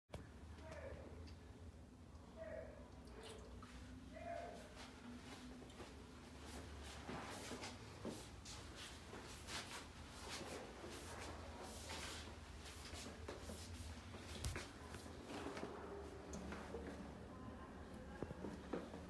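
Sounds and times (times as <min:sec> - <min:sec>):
soft rustles and shuffling: 0:03.6 - 0:17.3.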